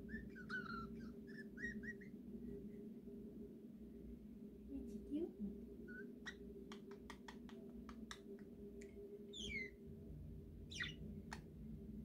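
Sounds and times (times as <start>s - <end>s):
budgie beak clicks: 6.7s - 8.3s.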